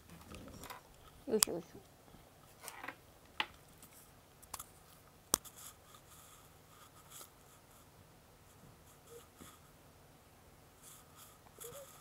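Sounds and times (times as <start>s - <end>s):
soft rubbing: 10.8s - 12.0s.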